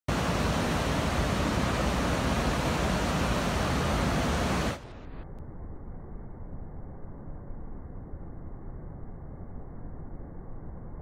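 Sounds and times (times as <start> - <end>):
waterfall and rushing river: 0.1 - 5.0.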